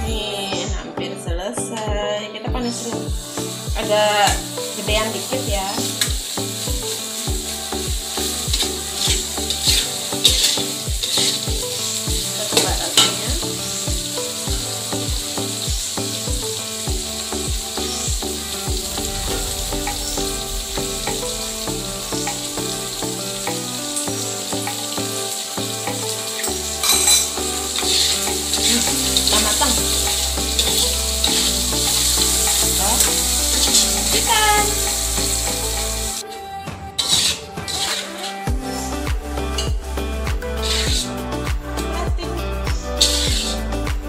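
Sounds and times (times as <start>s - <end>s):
squid sizzling in hot oil: 3.2s - 36.2s, 40.6s - 41.2s, 43.0s - 43.7s
metal spatula scraping a wok: 8.2s - 13.8s, 26.4s - 34.3s, 37.0s - 38.9s, 40.6s - 41.1s, 43.0s - 43.7s.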